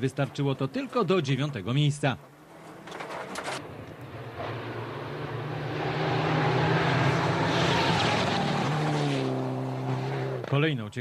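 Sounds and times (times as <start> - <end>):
rally car passing: 2.3 - 10.5.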